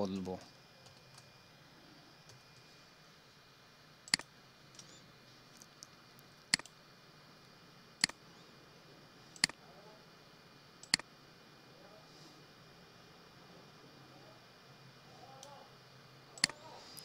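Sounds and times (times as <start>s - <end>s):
computer mouse clicking: 4.1s - 5.0s, 6.5s - 6.8s, 8.0s - 8.2s, 9.4s - 9.6s, 10.8s - 11.1s, 16.4s - 17.0s.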